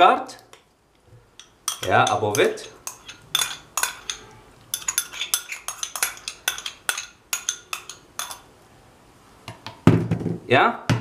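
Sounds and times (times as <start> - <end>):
metal spoon clinking on glass: 1.4 - 8.5.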